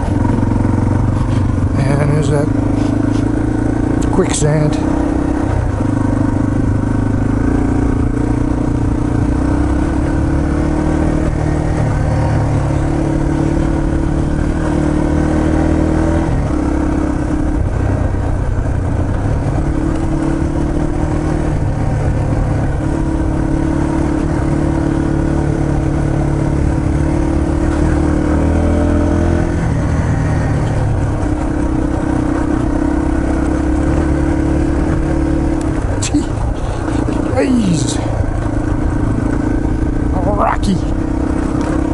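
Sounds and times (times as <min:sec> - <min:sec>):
dirt bike engine running: 0:00.0 - 0:41.9.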